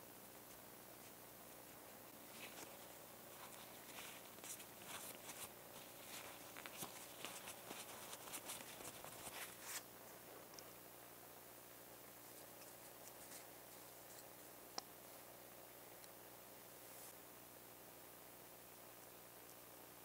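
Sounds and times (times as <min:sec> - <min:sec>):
cloth and swab rubbing plastic: 0:01.0 - 0:09.9.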